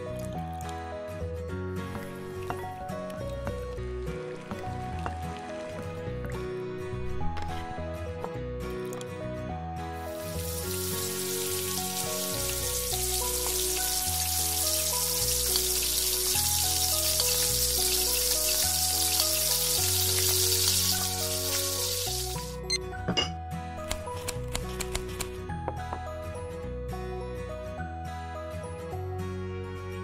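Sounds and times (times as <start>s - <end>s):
background music: 0.0s - 30.0s
dough sizzling in hot oil: 10.1s - 22.6s.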